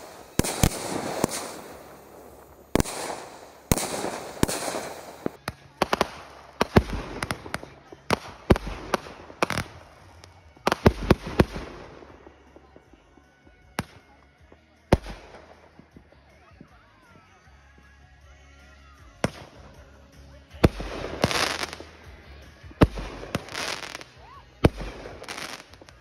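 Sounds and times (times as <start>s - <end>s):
fireworks sharp bangs: 0.0s - 12.2s, 20.6s - 22.1s, 22.8s - 26.0s
fireworks crackling bursts: 0.0s - 12.4s, 14.9s - 16.0s, 19.2s - 26.0s.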